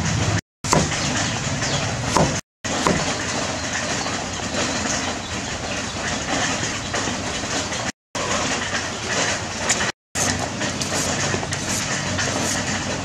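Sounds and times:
cleaver knocking on chopping block: 0.7 - 1.0, 2.1 - 3.1.

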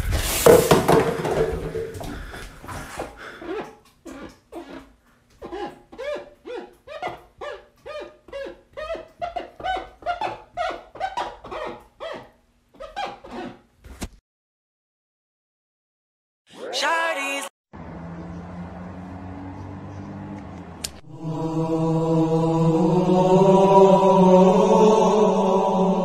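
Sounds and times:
fingertips squeaking on glass: 3.4 - 13.6.

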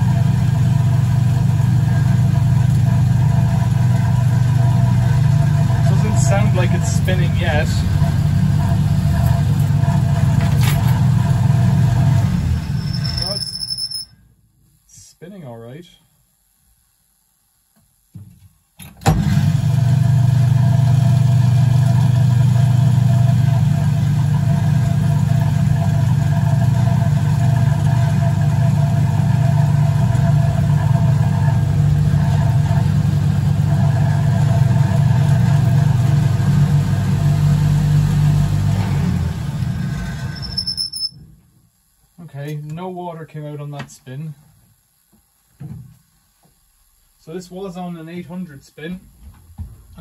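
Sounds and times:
spin dryer motor hum with whine: 0.0 - 13.4, 19.1 - 41.0.

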